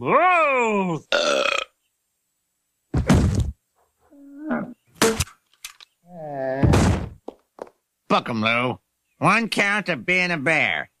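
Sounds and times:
heavy cartoon thud: 0:02.9 - 0:03.6, 0:06.6 - 0:07.2
grunt-like voice: 0:06.1 - 0:06.8.

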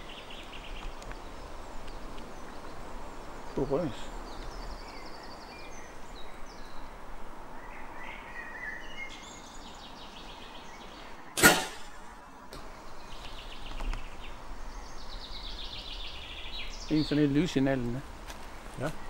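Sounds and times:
bow string snap: 0:11.4 - 0:12.7.

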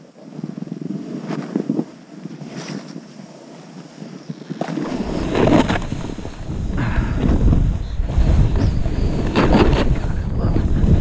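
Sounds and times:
skis swishing through snow: 0:00.2 - 0:06.7
wind rushing on microphone: 0:00.2 - 0:11.0.

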